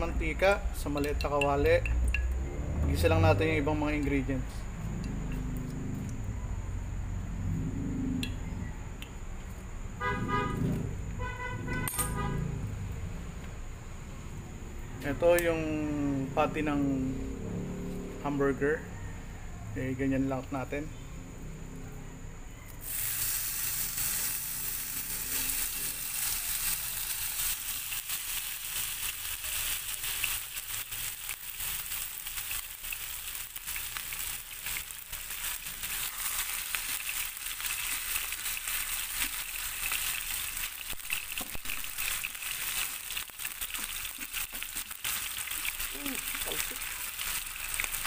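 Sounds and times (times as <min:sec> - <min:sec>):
meat sizzling in hot oil: 0:22.8 - 0:48.0.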